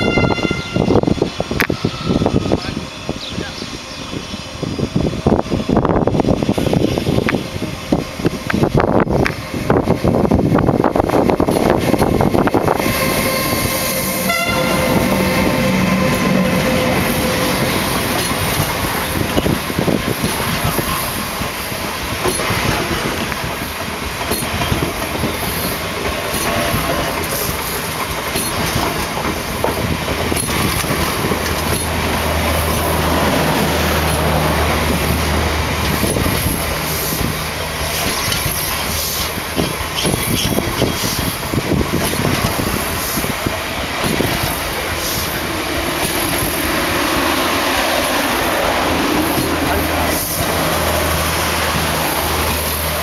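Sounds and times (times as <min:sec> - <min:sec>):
train coaches rumbling past: 0:00.0 - 0:53.0
wheels clacking over rail joints: 0:14.2 - 0:53.0.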